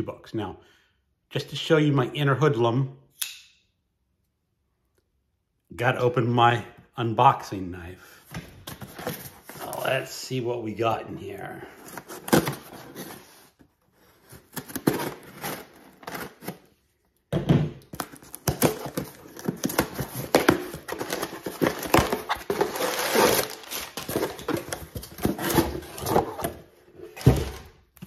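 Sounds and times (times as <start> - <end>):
cardboard crinkling and tearing: 11.8 - 16.8, 17.9 - 27.7.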